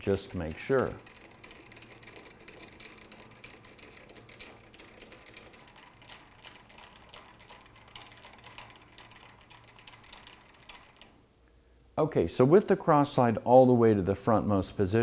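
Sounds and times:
lathe handwheel clicking: 0.0s - 11.2s.

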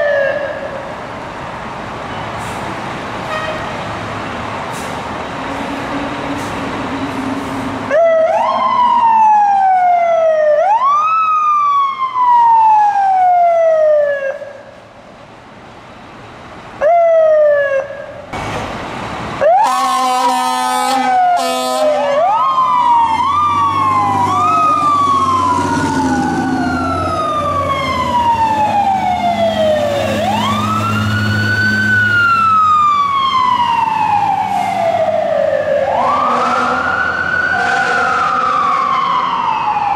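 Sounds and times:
fire truck sirens wailing: 0.0s - 14.9s, 16.2s - 39.9s
short horn blast: 19.7s - 22.0s.

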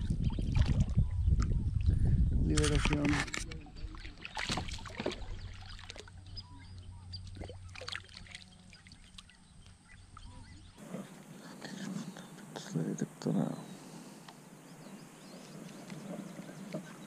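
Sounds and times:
water splashing: 2.9s - 6.4s, 7.2s - 12.3s, 15.2s - 17.0s.

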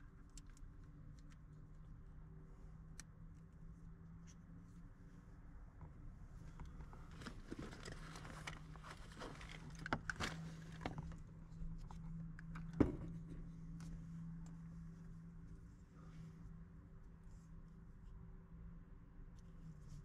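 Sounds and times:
steady low hum: 0.0s - 20.0s
rustling and clicking handling: 6.4s - 14.6s.

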